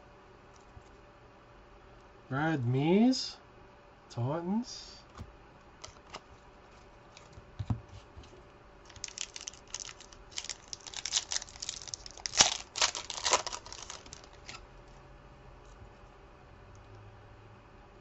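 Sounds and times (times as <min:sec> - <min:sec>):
card pack wrapper crackling: 0:05.8 - 0:14.6.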